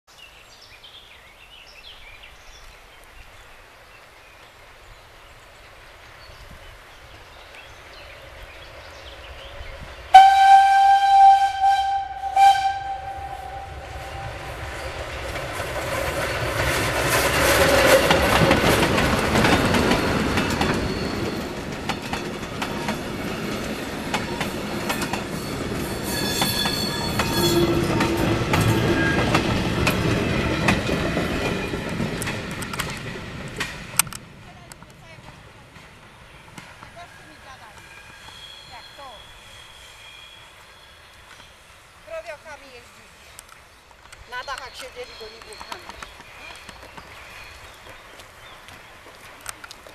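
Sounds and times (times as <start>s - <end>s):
steam locomotive exhaust rumble: 8.2s - 34.4s
steam locomotive whistle: 10.1s - 14.9s, 26.0s - 29.3s
train wheels clacking over rail joints: 14.6s - 34.2s.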